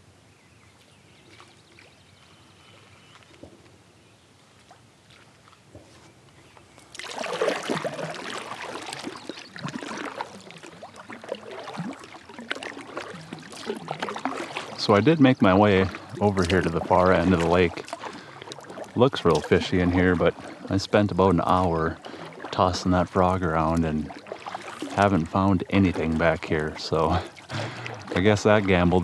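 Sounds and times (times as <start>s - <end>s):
kayak paddle strokes splashing: 0.7s - 29.0s.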